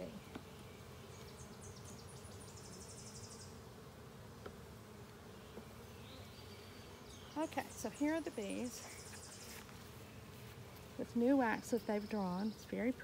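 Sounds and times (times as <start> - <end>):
honeybees humming: 0.0 - 13.0.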